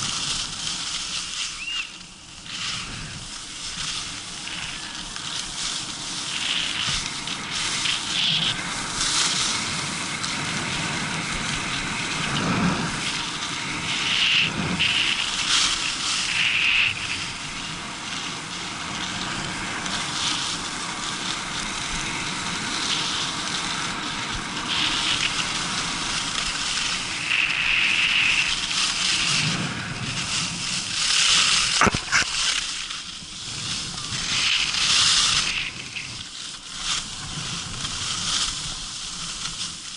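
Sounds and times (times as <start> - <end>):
skis scraping over snow: 0.0 - 39.9.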